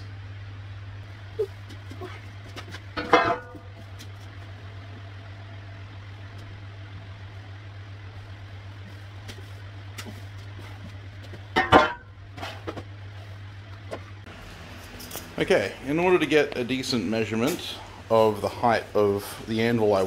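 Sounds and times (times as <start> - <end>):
steady low hum: 0.0 - 20.0
steel beam clanging on concrete: 3.0 - 3.7.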